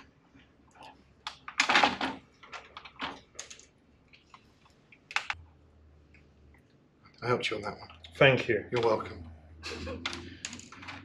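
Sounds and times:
plastic connectors clicking: 10.0 - 11.0.

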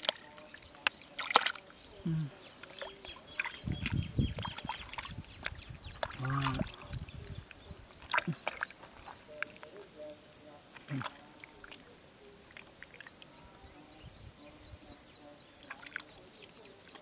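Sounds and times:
small splashes and drips: 0.0 - 1.8, 2.5 - 13.3, 15.6 - 17.0
wet mud squelching: 0.0 - 1.8, 2.5 - 11.9, 15.6 - 17.0
muddy water sloshing: 0.0 - 17.0.

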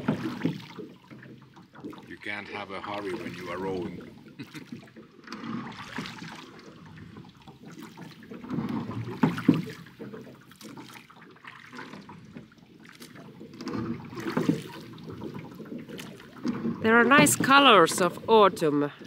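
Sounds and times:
oars swishing and splashing water: 0.0 - 19.0.

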